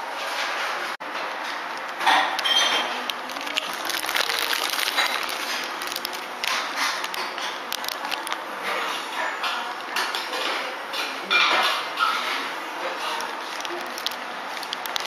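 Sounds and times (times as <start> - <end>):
busy room background noise: 0.0 - 15.0
small clicks and clatters: 1.3 - 8.4, 13.1 - 15.0.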